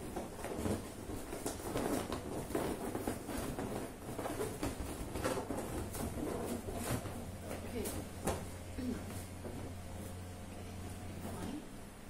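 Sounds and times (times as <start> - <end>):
balloons rubbing together: 0.0 - 8.6.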